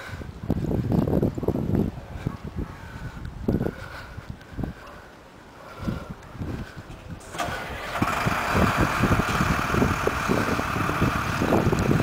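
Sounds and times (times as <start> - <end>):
wind buffeting microphone: 0.0 - 12.0
fire engine engine running: 7.2 - 12.0.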